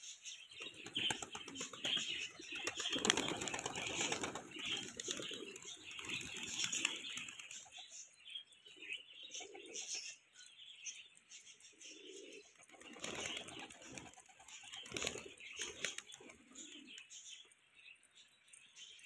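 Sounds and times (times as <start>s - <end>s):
pigeons cooing: 0.3s - 8.0s, 8.7s - 10.2s, 11.6s - 17.3s
wings fluttering: 0.5s - 8.0s, 12.5s - 17.1s.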